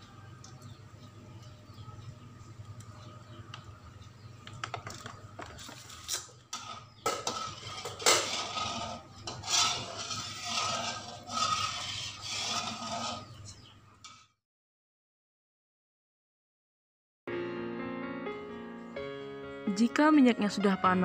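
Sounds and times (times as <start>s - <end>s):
metal spatula scraping wok: 5.8s - 14.2s.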